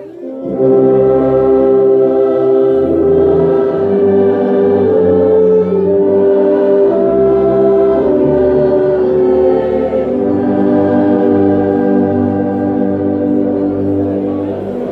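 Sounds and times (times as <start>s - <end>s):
orchestra and congregation hymn: 0.0s - 14.9s
french horn playing: 0.3s - 14.9s.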